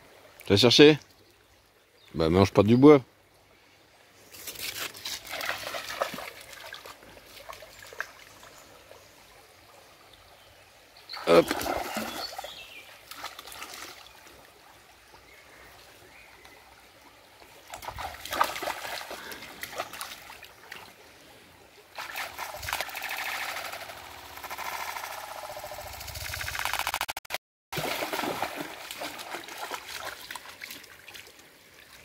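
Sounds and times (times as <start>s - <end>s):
stream trickling: 0.0s - 2.2s, 3.1s - 26.6s, 27.8s - 32.0s
dog splashing through water: 4.5s - 8.2s, 11.2s - 14.1s, 17.7s - 20.8s, 27.8s - 31.3s.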